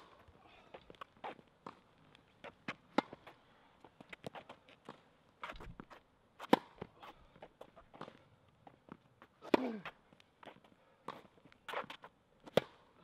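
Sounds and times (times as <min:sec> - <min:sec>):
tennis racket hitting ball: 0:02.7 - 0:03.4, 0:06.4 - 0:06.8, 0:12.5 - 0:12.8.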